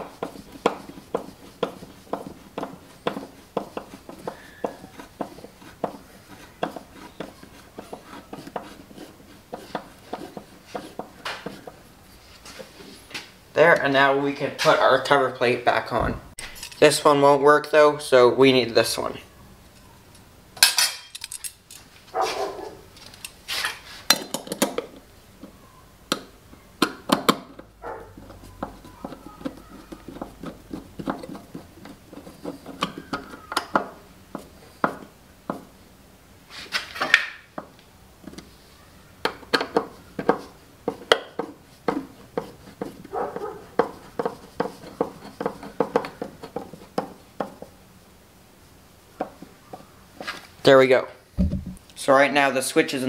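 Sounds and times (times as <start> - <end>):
screwdriver clinking on metal: 16.4 - 16.9, 20.6 - 21.8
screws ticking and scraping: 21.0 - 21.9.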